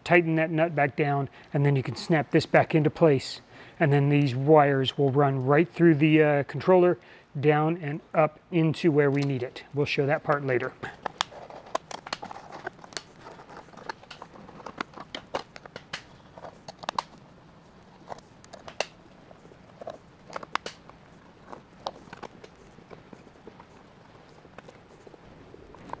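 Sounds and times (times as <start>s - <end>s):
hand tools clicking and tapping: 10.3s - 17.2s, 18.0s - 19.0s, 19.7s - 24.8s.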